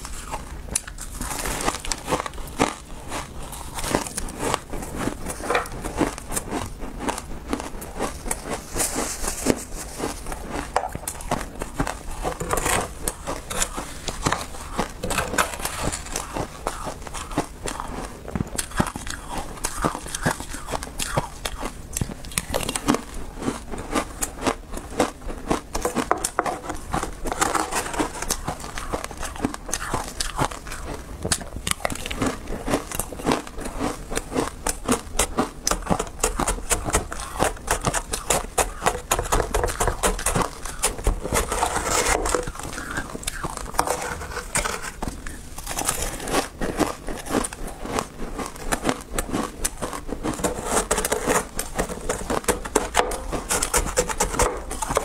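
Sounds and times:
crackly chewing of ice: 0.0 - 55.0
metal spoon scraping ice: 8.0 - 17.9, 25.8 - 30.9, 34.1 - 48.0, 48.6 - 55.0.

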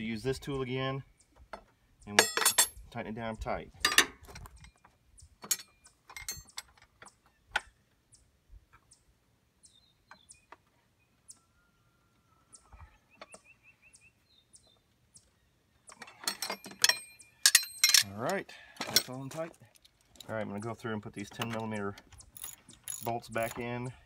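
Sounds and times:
metal tool clinks and knocks: 2.2 - 2.8, 3.8 - 4.8, 5.4 - 7.2, 15.9 - 18.2, 18.8 - 20.3, 21.2 - 24.0.

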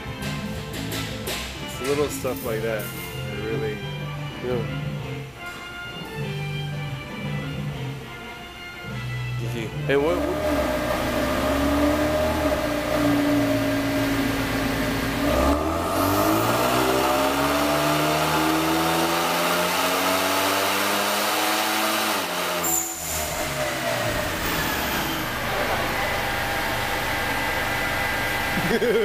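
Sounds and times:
car engine revving under load: 9.9 - 29.0.

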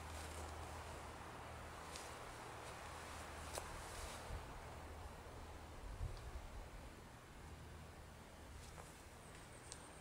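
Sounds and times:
hammock fabric rustling: 0.0 - 6.5, 8.4 - 9.6
low steady rumble: 0.0 - 10.0.

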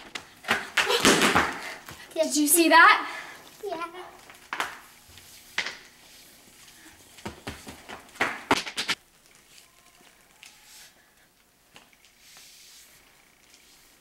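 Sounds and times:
flip-flops slapping on tile: 0.0 - 2.1, 4.2 - 11.0.

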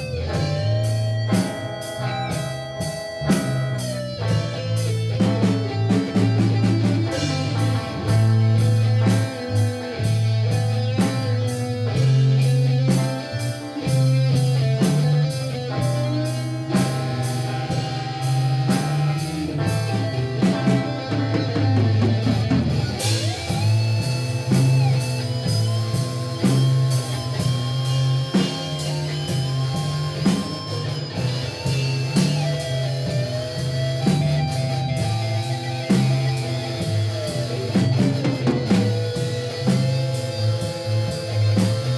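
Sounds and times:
lead guitar sliding notes: 0.0 - 41.9
rock band playing: 0.0 - 41.9.

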